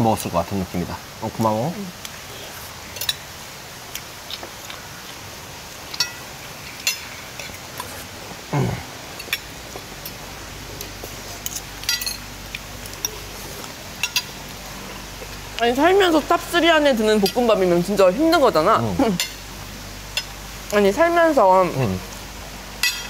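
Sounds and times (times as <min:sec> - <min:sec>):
cutlery clinking on plates: 0:05.9 - 0:07.6, 0:10.8 - 0:12.2, 0:14.0 - 0:14.3, 0:22.8 - 0:23.0.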